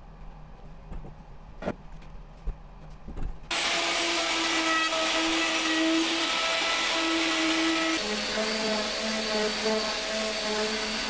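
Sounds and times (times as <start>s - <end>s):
electric router whining: 3.5s - 11.0s.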